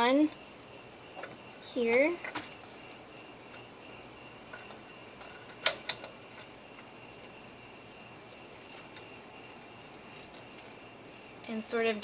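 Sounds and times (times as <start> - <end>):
steady faint hiss: 0.0 - 12.0
sharp metal clicks: 4.6 - 6.5.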